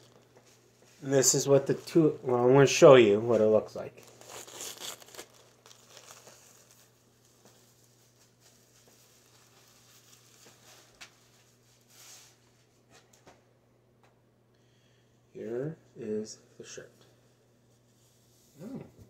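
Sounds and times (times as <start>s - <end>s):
plastic bag rustling: 0.0s - 2.2s, 3.3s - 12.4s.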